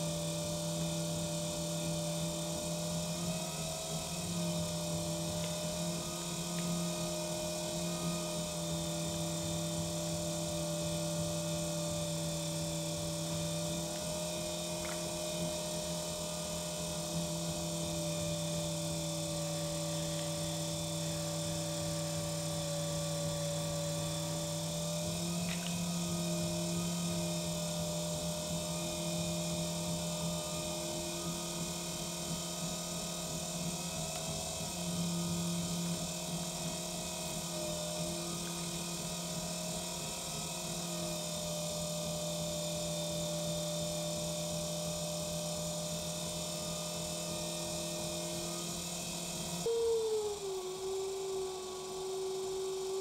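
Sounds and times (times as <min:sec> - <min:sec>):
potter's wheel motor humming: 0:00.0 - 0:53.0.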